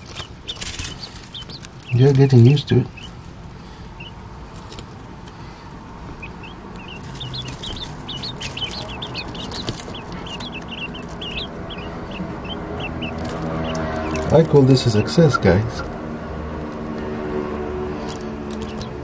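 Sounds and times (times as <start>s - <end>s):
beaks pecking metal tin: 0.0s - 3.3s, 6.2s - 15.2s, 18.0s - 19.0s
quail chicks peeping: 0.0s - 19.0s.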